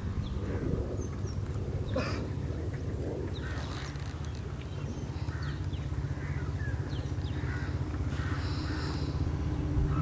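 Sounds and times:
low engine rumble: 0.0 - 10.0
crows cawing: 5.2 - 6.7, 7.3 - 9.1.

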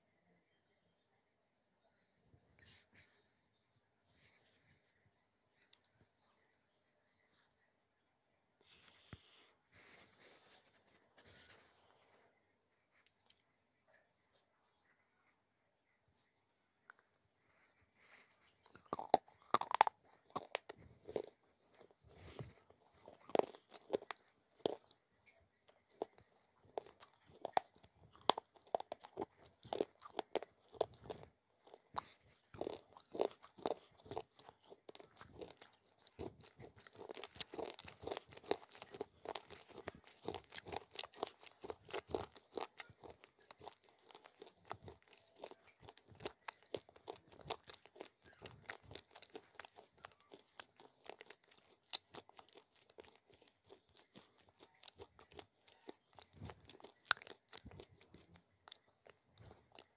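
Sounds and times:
chewing crunchy clay: 16.8 - 59.9.

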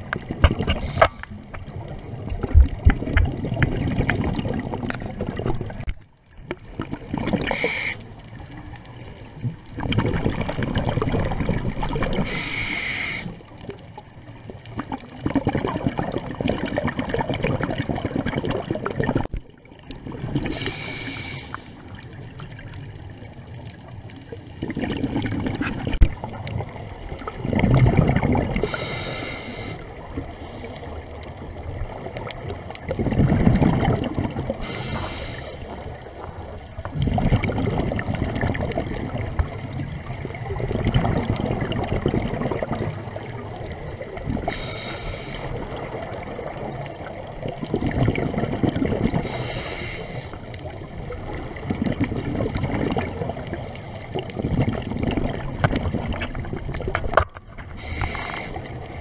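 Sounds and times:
gurgle of exhaled bubbles: 0.0 - 59.0
hiss of inhaled breath: 7.4 - 8.2, 12.2 - 13.5, 20.4 - 21.9, 28.6 - 30.8, 34.6 - 35.9, 44.5 - 45.6, 49.2 - 50.4, 57.8 - 59.0.

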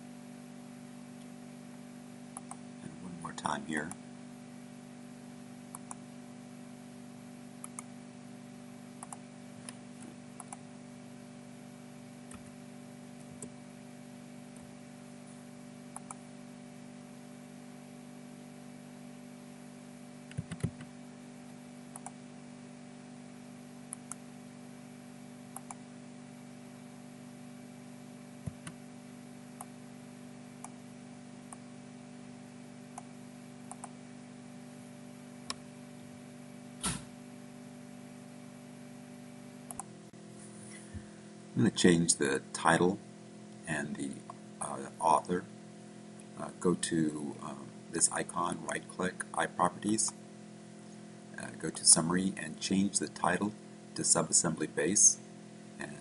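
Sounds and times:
low electrical hum: 0.0 - 56.0
computer mouse clicks: 2.4 - 2.6, 5.7 - 6.0, 7.6 - 7.9, 9.0 - 10.6, 15.9 - 16.2, 21.9 - 22.2, 25.6 - 25.8, 33.7 - 34.0
keyboard keystrokes: 20.3 - 20.9.

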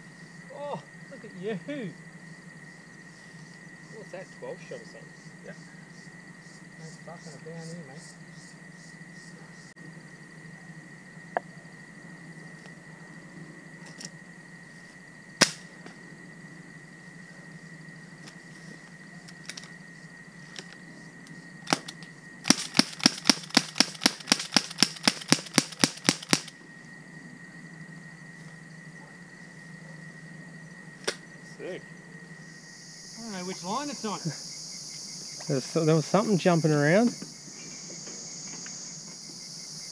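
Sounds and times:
rifle shots: 21.7 - 26.5.

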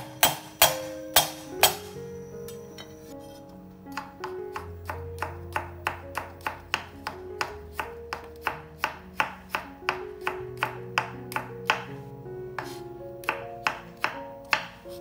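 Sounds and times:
soft background music: 0.0 - 15.0
knife chopping on cutting board: 3.9 - 11.9, 12.6 - 15.0.

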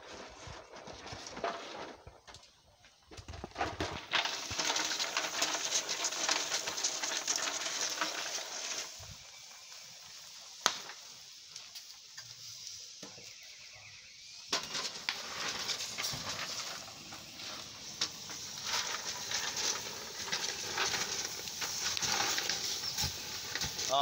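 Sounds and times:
shells crackling and hissing: 0.0 - 24.0
sharp crack: 10.5 - 11.9, 14.5 - 24.0.

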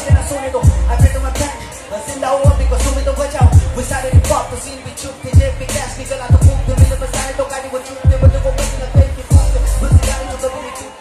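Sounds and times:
loud music through sound system: 0.0 - 11.0
person singing or rapping: 0.0 - 11.0
deep booming bass hits: 0.7 - 1.4, 2.5 - 4.5, 5.4 - 7.3, 8.1 - 10.2.

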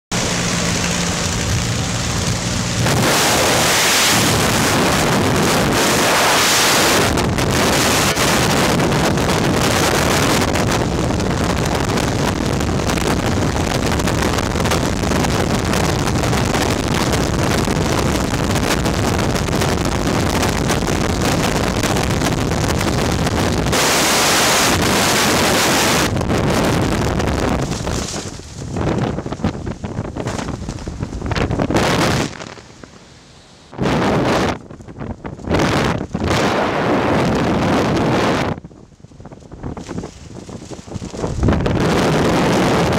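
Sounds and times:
light aircraft engine droning: 0.1 - 11.9
loud wind rushing over microphone: 0.1 - 42.9
parachute canopy opening: 23.7 - 33.0, 39.2 - 42.9.

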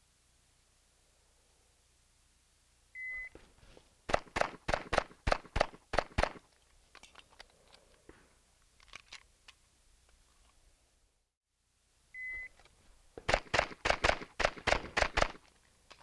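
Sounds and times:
pistol shots: 4.1 - 6.4, 13.3 - 15.4
shot timer beep: 12.2 - 12.5.

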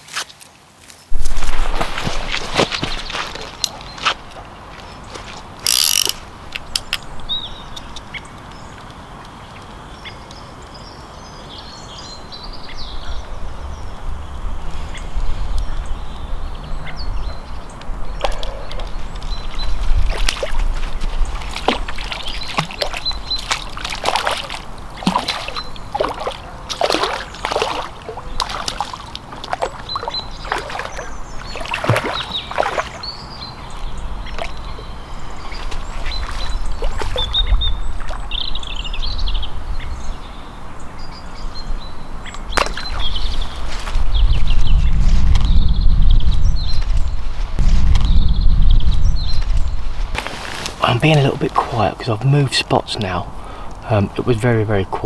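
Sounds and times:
wind rumble on microphone: 11.9 - 23.8, 29.9 - 50.3
bait balls splashing into water: 20.0 - 33.1, 42.5 - 43.5.

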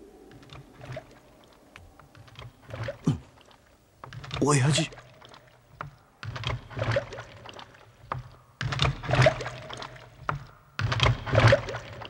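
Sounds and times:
water dripping: 0.0 - 12.0
water splashing: 0.3 - 12.0.

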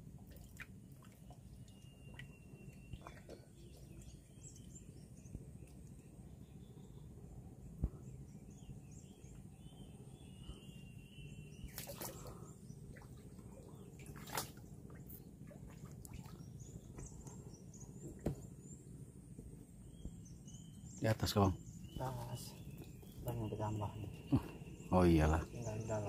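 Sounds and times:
water drips and small splashes: 0.0 - 6.2, 11.6 - 18.5
faint bird chirps: 1.0 - 26.0
insect chirps: 3.5 - 12.7
low steady rumble: 12.3 - 21.0.

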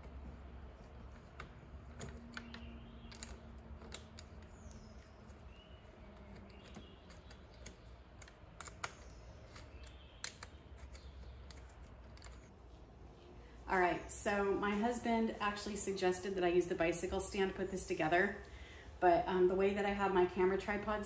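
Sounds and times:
hex key clicking on bolts: 1.1 - 12.5.

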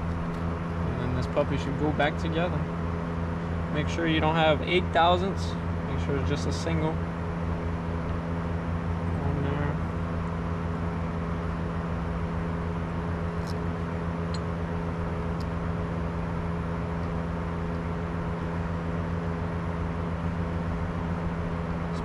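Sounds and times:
steady mechanical hum: 0.0 - 22.0.

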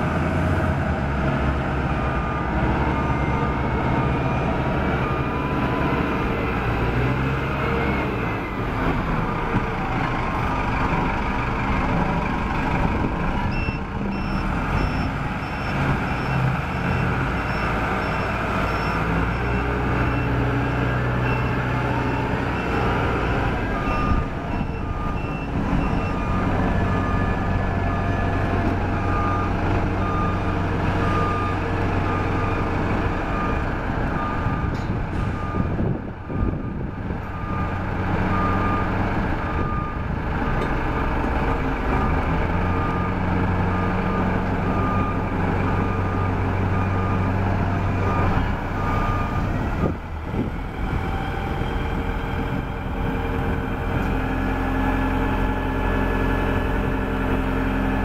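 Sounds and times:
diesel engine running: 0.0 - 58.0
reversing alarm beeping: 2.0 - 8.6, 13.5 - 32.7, 35.3 - 40.1, 42.0 - 50.0.

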